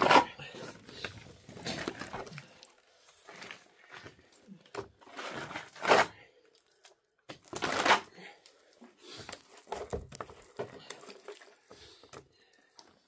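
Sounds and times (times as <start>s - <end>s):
trowel scraping plaster on wall: 5.0s - 6.4s, 7.4s - 8.2s.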